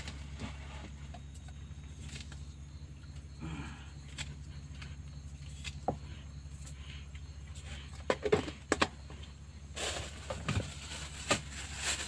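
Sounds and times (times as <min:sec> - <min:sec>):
steady low hum: 0:00.0 - 0:12.0
plastic cups knocking and clicking: 0:07.9 - 0:09.0.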